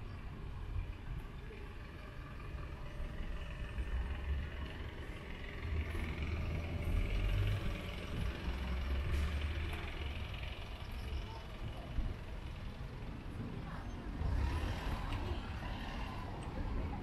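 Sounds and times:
low uneven street rumble: 0.0 - 17.0.

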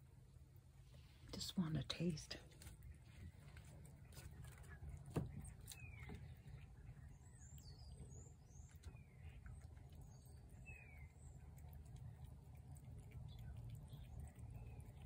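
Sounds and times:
low steady rumble: 0.0 - 15.0
faint bird chirps: 4.0 - 12.3.

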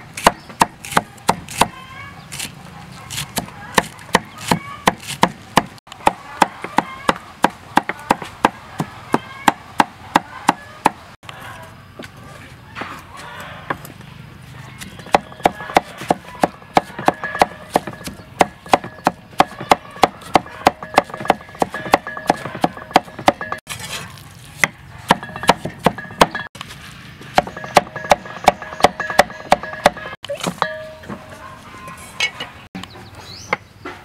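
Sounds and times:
cleaver chopping on wooden block: 0.2 - 1.8, 3.1 - 8.9, 14.8 - 23.6, 24.6 - 26.5, 27.3 - 30.7.

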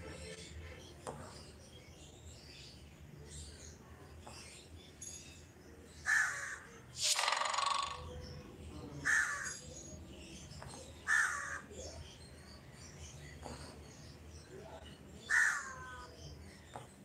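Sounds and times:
bird harsh calls: 6.0 - 8.3, 9.0 - 9.8, 10.7 - 12.0, 15.2 - 17.0.

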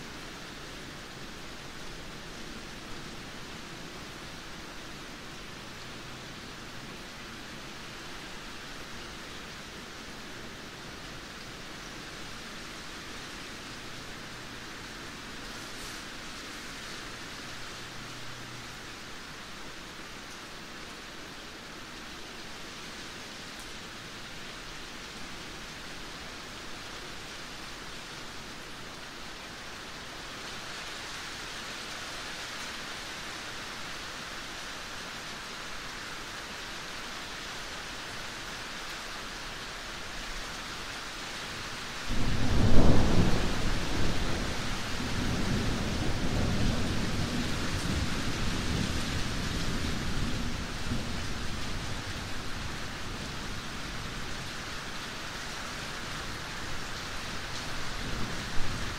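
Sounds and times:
steady rain hiss: 0.0 - 58.9
thunderclap rumbling: 42.1 - 50.0.

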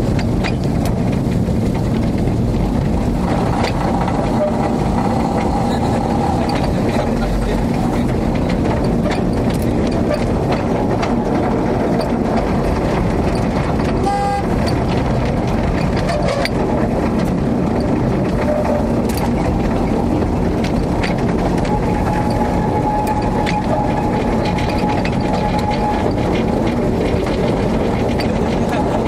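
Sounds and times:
rail motor car rumbling on track: 0.0 - 29.0
short horn toot: 14.0 - 14.5.

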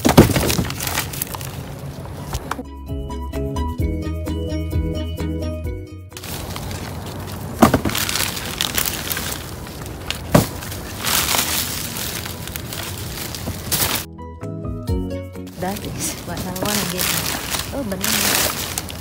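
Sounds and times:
plastic bags crinkling and rustling: 0.0 - 2.5, 6.2 - 14.1, 15.5 - 19.0
sharp cracks: 6.2 - 14.1.

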